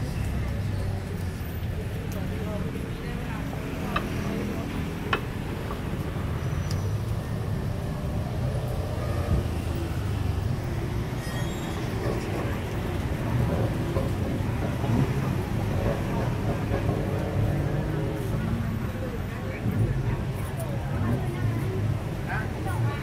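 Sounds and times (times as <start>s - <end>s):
traffic rumble: 0.0s - 23.0s.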